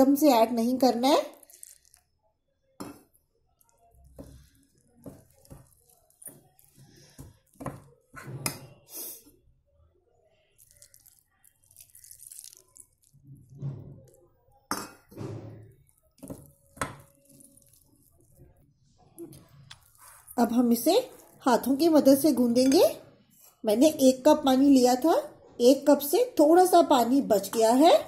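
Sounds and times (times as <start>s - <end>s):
spoon scraping glass bowl: 1.3s - 2.1s, 10.6s - 18.4s.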